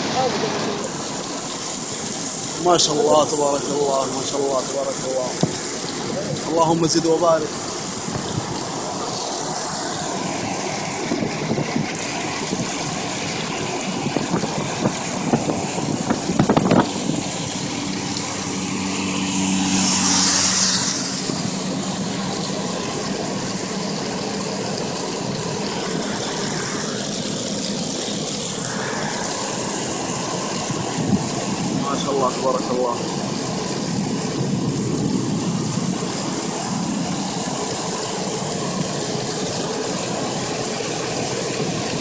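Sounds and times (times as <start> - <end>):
car road and wind noise: 0.0 - 42.0
loud hiss: 28.6 - 30.7.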